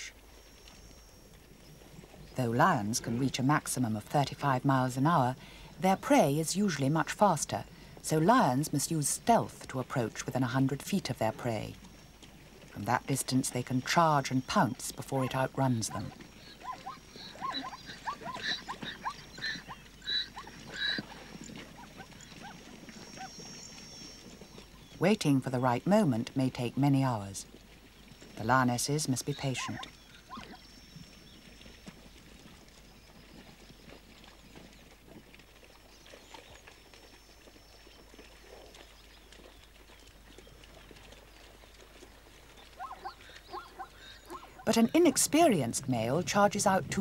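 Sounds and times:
wild animal chirping calls: 0:15.8 - 0:23.6, 0:42.7 - 0:45.2.

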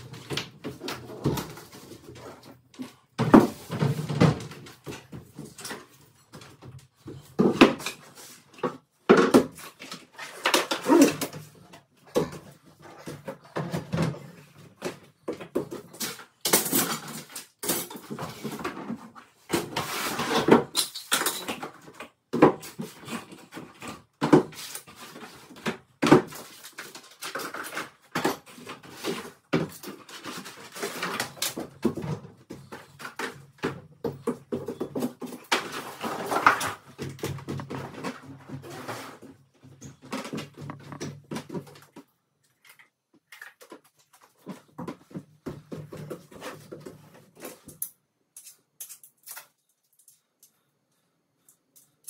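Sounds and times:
furniture panels knocking and scraping: 0:31.7 - 0:41.8.

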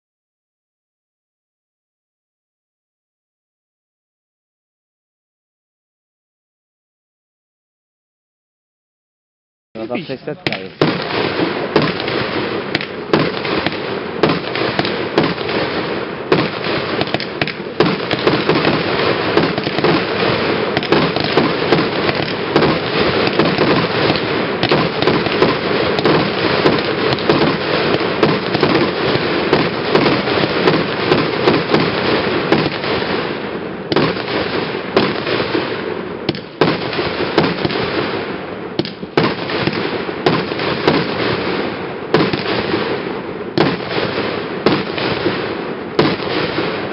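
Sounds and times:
fireworks barrage crackling and popping: 0:09.8 - 0:46.9.

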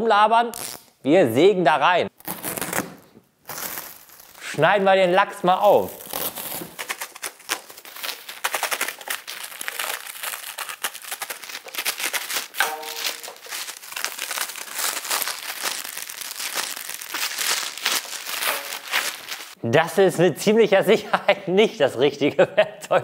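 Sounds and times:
plastic wrapping crinkling: 0:02.2 - 0:19.6.

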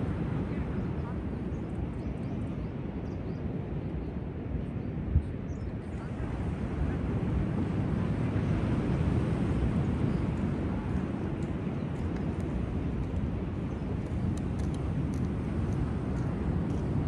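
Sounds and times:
ocean surf rumbling: 0:06.0 - 0:17.0.

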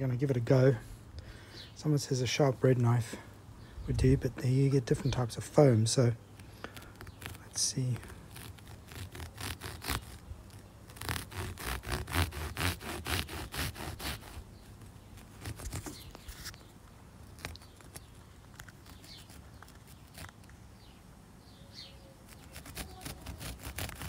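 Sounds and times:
knife sawing through foam: 0:08.2 - 0:10.2, 0:10.9 - 0:14.5, 0:15.2 - 0:16.5, 0:22.3 - 0:24.0.

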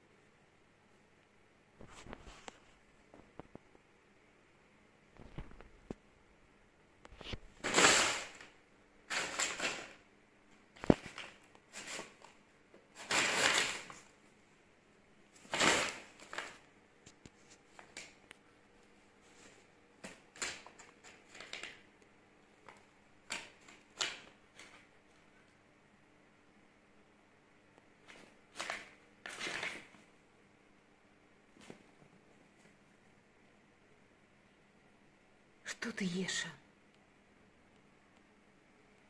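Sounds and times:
paper bag crinkling: 0:09.1 - 0:10.0, 0:10.8 - 0:14.1, 0:15.4 - 0:16.7, 0:28.1 - 0:30.0.

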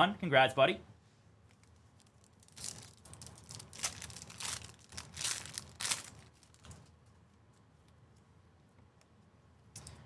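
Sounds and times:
foil wrapper ripping: 0:01.6 - 0:06.9
foil wrapper crackling: 0:01.6 - 0:07.0.

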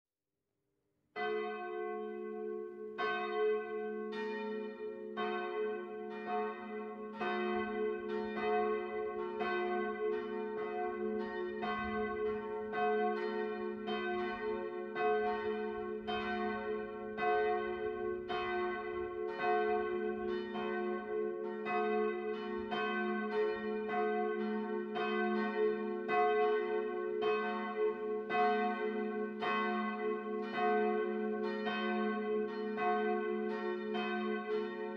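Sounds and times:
church bells ringing: 0:01.2 - 0:34.9.

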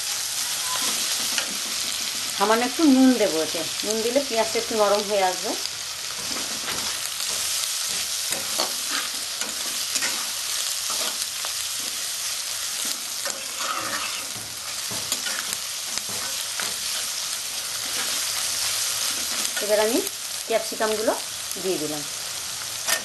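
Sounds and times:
onions sizzling in oil: 0:00.0 - 0:23.0
spatula scraping and clinking pan: 0:12.8 - 0:17.0.

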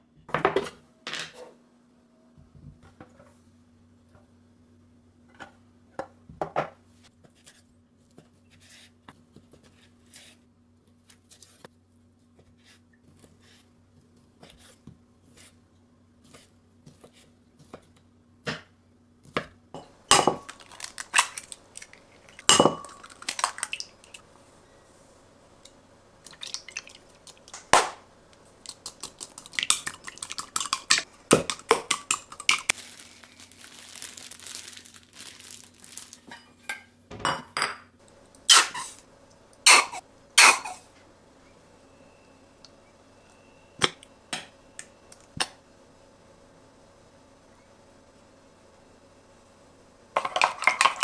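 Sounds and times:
stick beating eggs in glass: 0:28.6 - 0:32.7.

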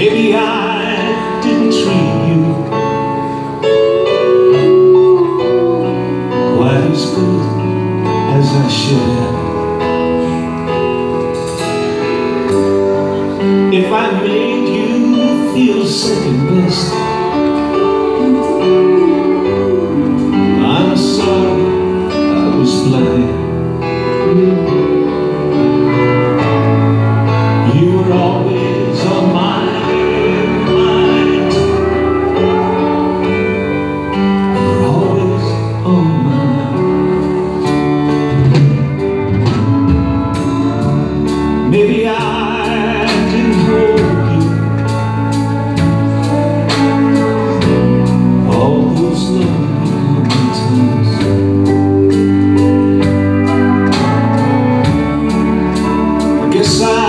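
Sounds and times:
live country band playing ballad: 0:00.0 - 0:57.0.

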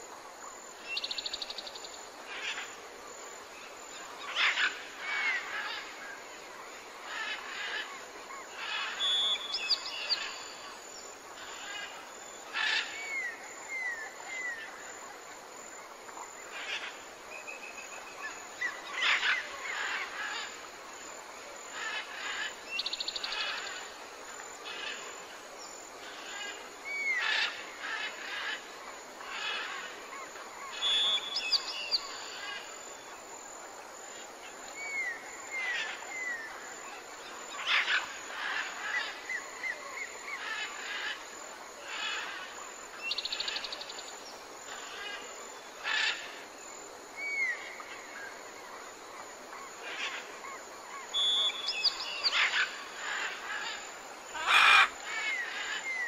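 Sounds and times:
background hiss: 0:00.0 - 0:56.0
birds whistling and calling: 0:30.7 - 0:32.3, 0:51.1 - 0:52.7.

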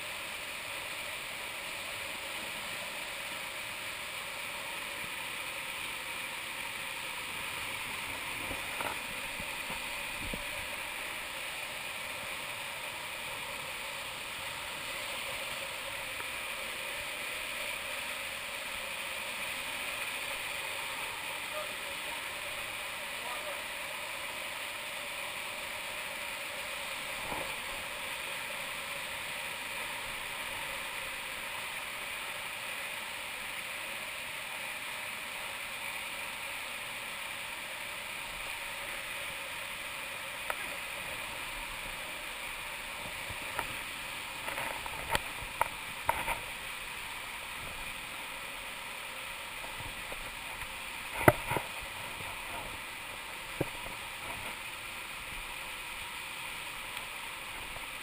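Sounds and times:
water rushing over rocks: 0:00.0 - 0:58.0.

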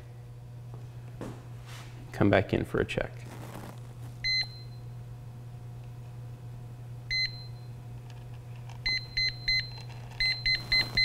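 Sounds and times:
leak detector alarm beeps: 0:04.2 - 0:04.9, 0:07.1 - 0:07.7, 0:08.8 - 0:11.0.

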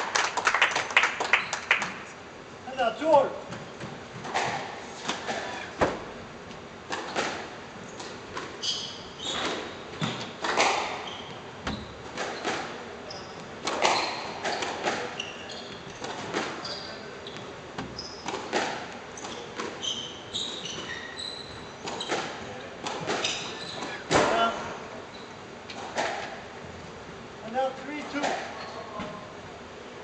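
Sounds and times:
shoes squeaking on wooden floor: 0:07.0 - 0:24.3
squash ball cracking off rackets: 0:13.6 - 0:15.2.

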